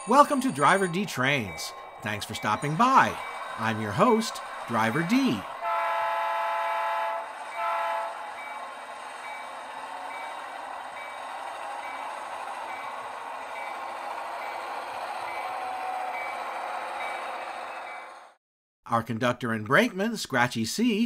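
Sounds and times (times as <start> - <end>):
train bell ringing: 0.0 - 5.8, 7.2 - 18.4
diesel engine sound: 0.1 - 18.4
model train horn toot: 5.6 - 8.2.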